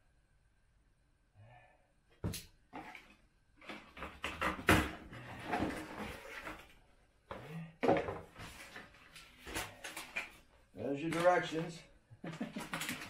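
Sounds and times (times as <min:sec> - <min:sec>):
cardboard and paper rustling: 0:02.8 - 0:06.8, 0:08.0 - 0:11.7, 0:12.3 - 0:13.0.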